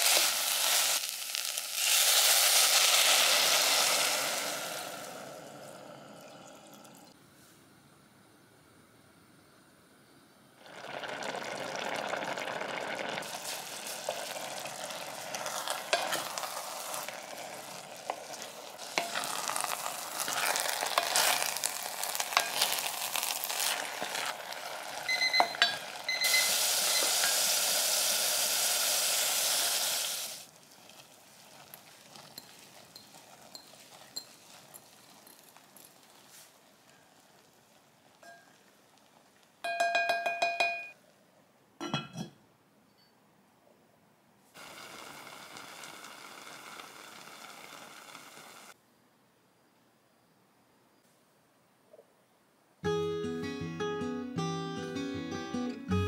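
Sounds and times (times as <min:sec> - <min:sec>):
loud sizzling hiss: 0:00.0 - 0:07.2, 0:10.5 - 0:37.7, 0:44.6 - 0:48.8
rice bubbling in a pot: 0:00.0 - 0:07.2, 0:10.6 - 0:40.2, 0:44.5 - 0:48.8
wooden spatula scraping pot: 0:15.3 - 0:24.4.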